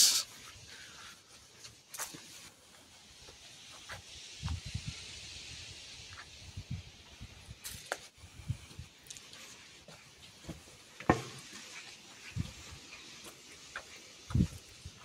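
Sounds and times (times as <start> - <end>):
faint steady hiss: 0.0 - 15.0
footsteps: 7.6 - 15.0.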